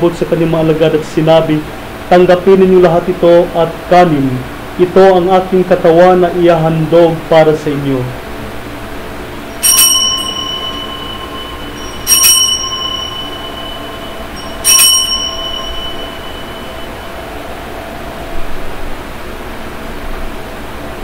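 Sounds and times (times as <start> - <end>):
altar bell ringing: 9.4 - 18.2.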